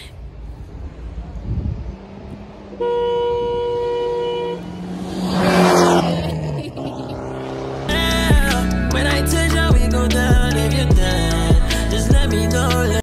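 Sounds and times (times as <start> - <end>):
vehicle rushing past: 0.3 - 8.2
vehicle horn blast: 2.8 - 4.9.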